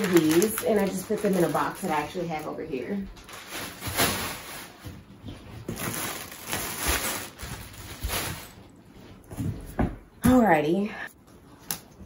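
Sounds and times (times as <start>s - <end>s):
plastic packaging crinkling: 0.0s - 8.8s.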